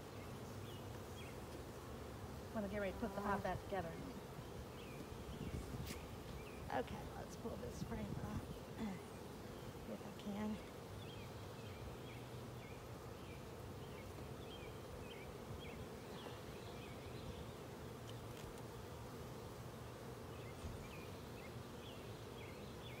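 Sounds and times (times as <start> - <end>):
honey bees buzzing: 0.0 - 23.0.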